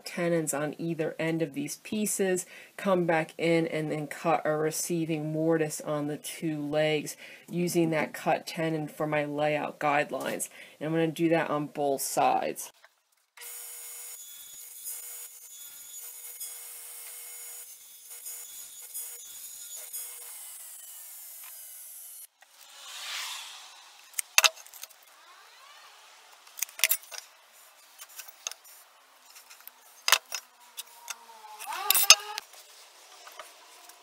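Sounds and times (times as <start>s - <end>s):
short swish: 22.6s - 24.2s
table saw whine: 22.6s - 27.1s
tape measure and pencil clicks: 24.1s - 25.0s, 26.4s - 27.3s, 27.9s - 32.5s.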